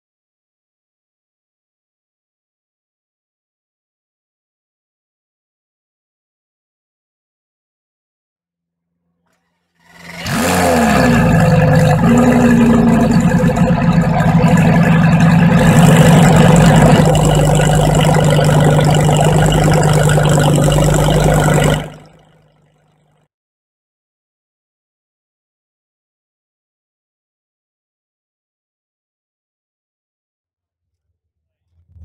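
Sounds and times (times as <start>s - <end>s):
car engine starting and idling: 9.8s - 22.2s.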